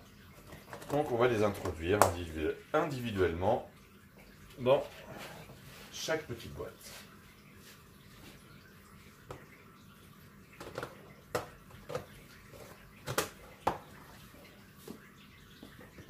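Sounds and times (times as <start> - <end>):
plastic box clicks and knocks: 10.6 - 12.1, 13.0 - 13.8.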